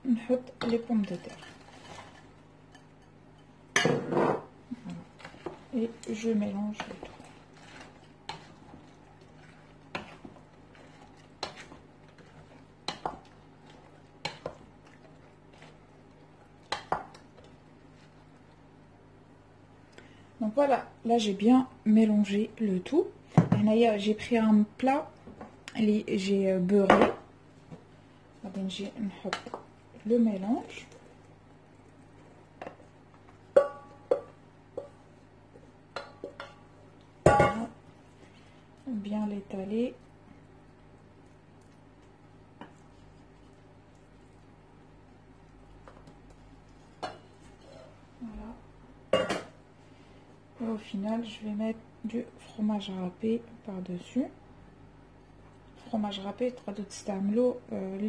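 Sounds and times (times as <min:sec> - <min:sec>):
wooden spoon knocking on steel bowl: 0:33.5 - 0:35.0.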